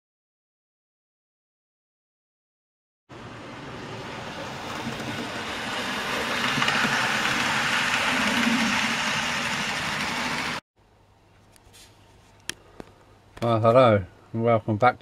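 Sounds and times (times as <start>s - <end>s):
model train whirring on rails: 3.2s - 10.6s.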